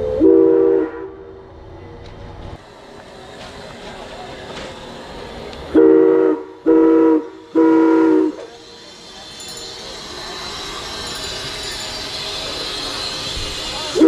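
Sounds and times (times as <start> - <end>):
steam locomotive whistle blasts: 0.0 - 1.3, 5.7 - 14.0
steady steam hiss: 2.6 - 14.0.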